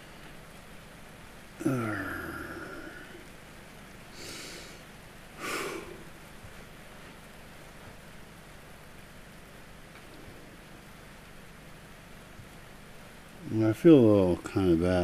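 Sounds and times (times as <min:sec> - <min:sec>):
faint steady hiss: 0:00.0 - 0:15.0
man sighing: 0:01.6 - 0:03.3.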